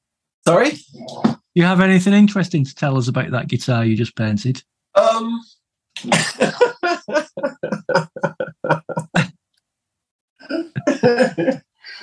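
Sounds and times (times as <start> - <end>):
person making wordless syllables: 5.0 - 9.3.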